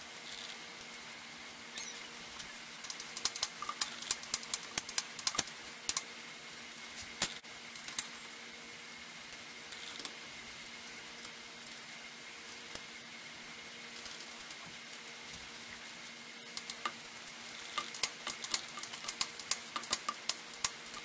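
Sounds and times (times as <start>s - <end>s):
faint steady hum: 0.0s - 21.0s
small clicks and taps on bicycle: 2.4s - 6.1s, 16.6s - 17.0s, 17.6s - 21.0s.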